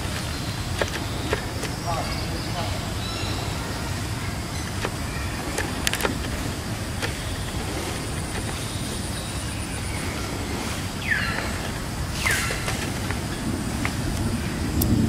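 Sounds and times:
low outdoor rumble: 0:00.0 - 0:15.0
sharp clicks: 0:04.6 - 0:09.1.

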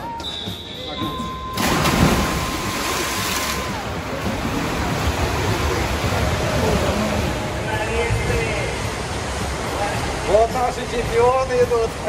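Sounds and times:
swimmers splashing: 0:01.1 - 0:10.4.

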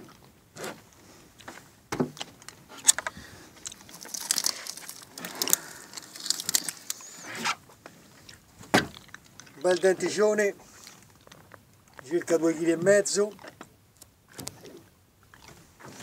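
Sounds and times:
hands rummaging through fish: 0:02.4 - 0:07.5.

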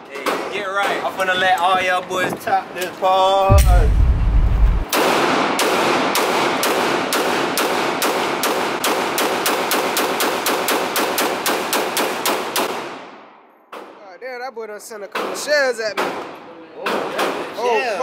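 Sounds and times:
low rumble: 0:03.5 - 0:04.9
pistol shots echoing indoors: 0:04.8 - 0:14.0.

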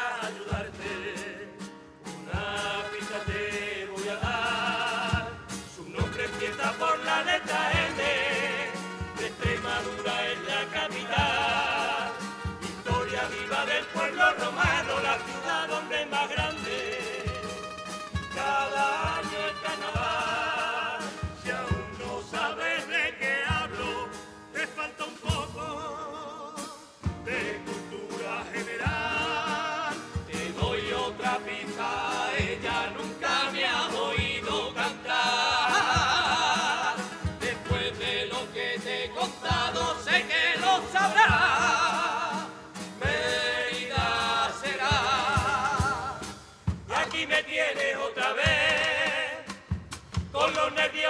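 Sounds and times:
choir singing with vibrato: 0:00.0 - 0:51.0
guitar: 0:00.0 - 0:51.0
bass drum beats: 0:02.3 - 0:22.6, 0:27.0 - 0:47.4.

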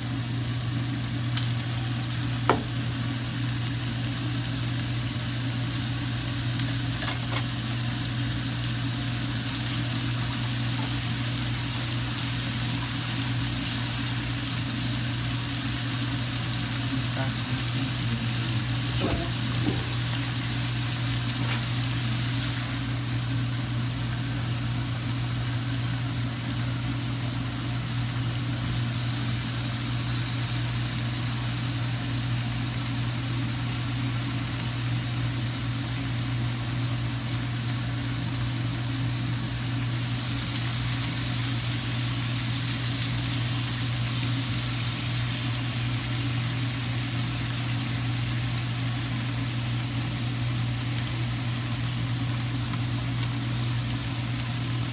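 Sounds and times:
steady low hum: 0:00.0 - 0:34.8
steak sizzling in a frying pan: 0:00.0 - 0:54.9.

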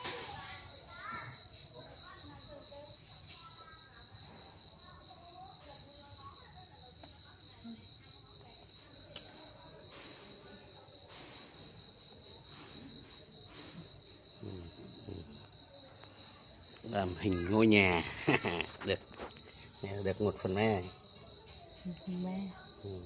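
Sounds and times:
continuous insect trill: 0:00.0 - 0:23.0
crickets chirping: 0:00.0 - 0:23.0.

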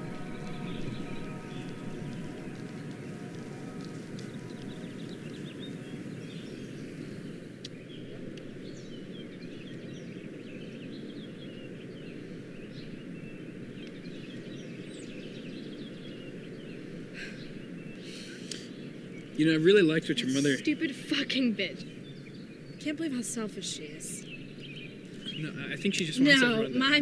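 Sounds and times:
low background rumble: 0:00.0 - 0:19.3
small birds chirping: 0:00.0 - 0:27.0.

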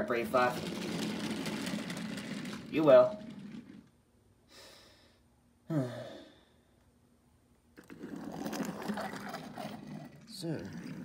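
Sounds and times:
toy car scraping on wooden floor: 0:00.0 - 0:04.0, 0:07.9 - 0:11.0
person sighing: 0:05.6 - 0:06.6.

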